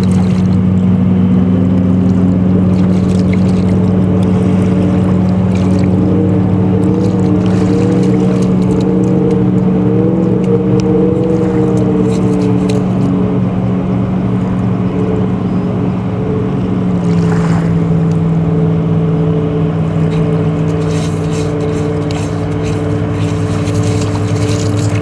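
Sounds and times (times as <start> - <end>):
dog paws digging in wet sand: 0.0 - 0.7, 2.0 - 13.2, 19.7 - 25.0
engine low drone: 0.0 - 25.0.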